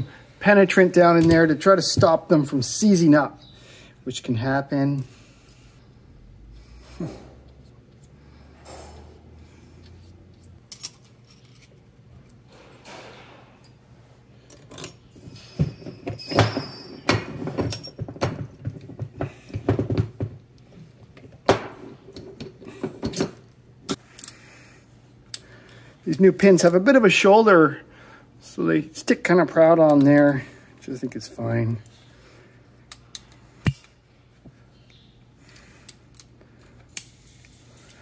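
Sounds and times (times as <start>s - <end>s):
metallic jingle: 15.3s - 17.1s.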